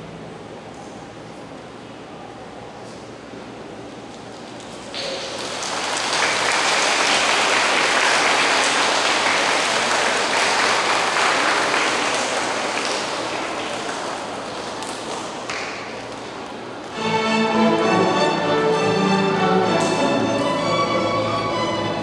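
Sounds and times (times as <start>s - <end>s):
audience applauding: 4.6s - 16.3s.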